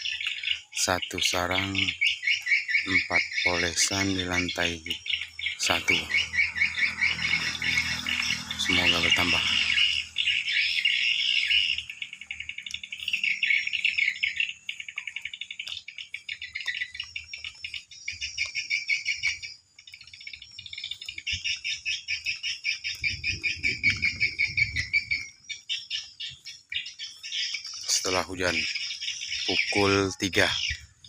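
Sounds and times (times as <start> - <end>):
swiftlets twittering: 0.6 - 17.8, 27.6 - 31.0.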